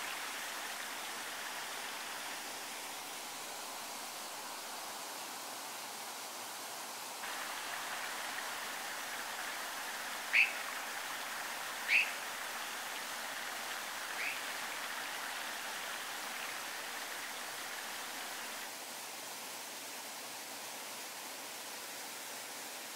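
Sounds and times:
fast stream rushing: 0.0 - 22.9
sharp bird calls: 10.3 - 10.7, 11.8 - 12.2, 14.1 - 14.5.

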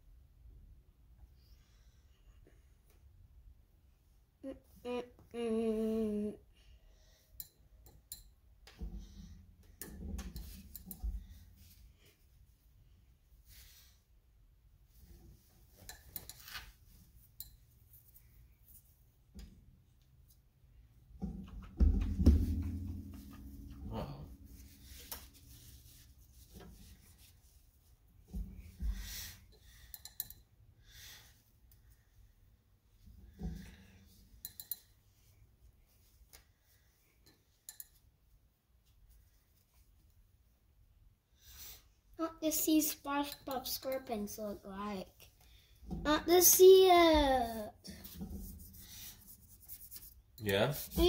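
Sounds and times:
person humming: 4.4 - 6.4.

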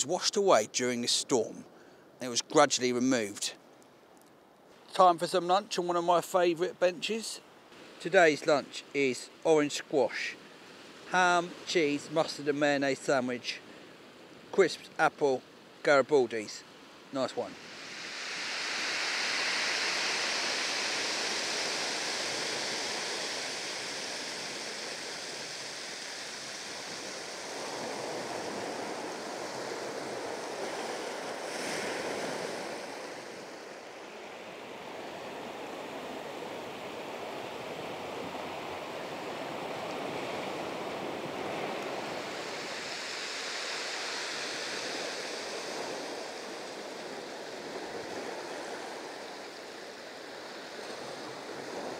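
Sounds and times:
surf washing up shingle beach: 4.7 - 51.9
sea waves breaking over rocks: 16.9 - 51.9.

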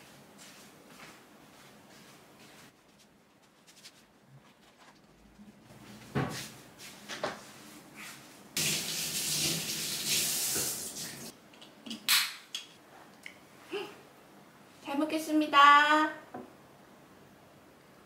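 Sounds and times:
kitchen tap running: 8.6 - 11.3.

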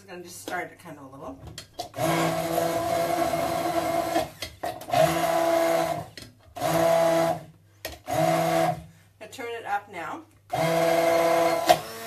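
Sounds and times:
immersion blender bursts: 1.9 - 8.9, 10.5 - 12.0.

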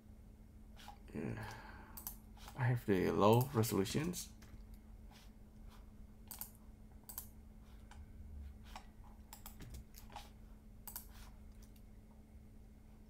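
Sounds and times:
faint low hum: 0.0 - 13.0
keyboard and mouse clicks: 0.8 - 2.6, 6.2 - 8.0, 8.7 - 11.8.

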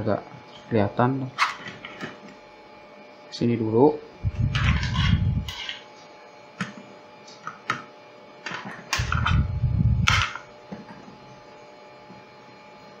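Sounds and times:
cables rubbing and clattering: 4.2 - 5.8, 8.5 - 10.4.

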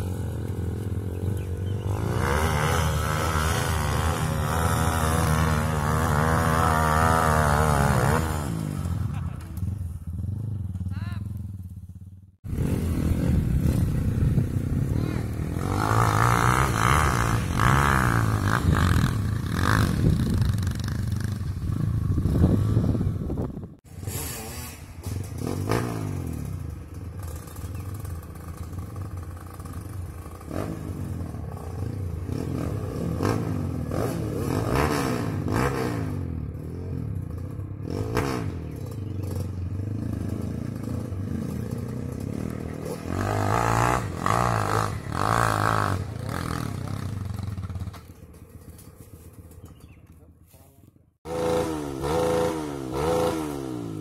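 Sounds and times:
dirt bike engines revving: 0.0 - 54.0.

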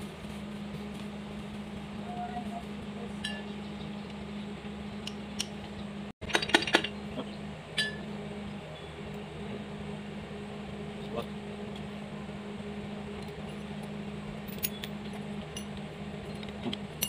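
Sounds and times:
steady low hum: 0.0 - 17.0
metal parts clinking on engine block: 6.2 - 7.0.

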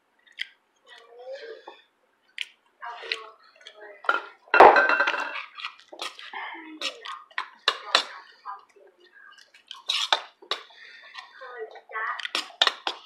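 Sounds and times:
dishes clattering: 4.0 - 6.2, 6.8 - 8.2
spoons clinking against bowls: 4.0 - 8.2.

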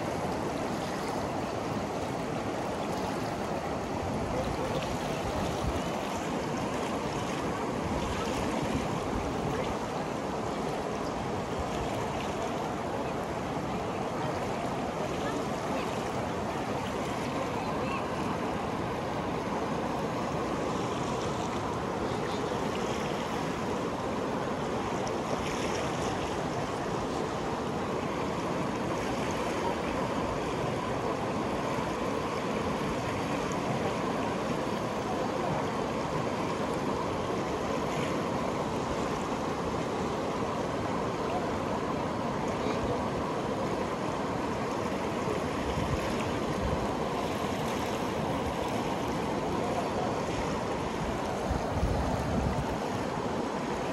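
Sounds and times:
river water rushing: 0.0 - 53.9.

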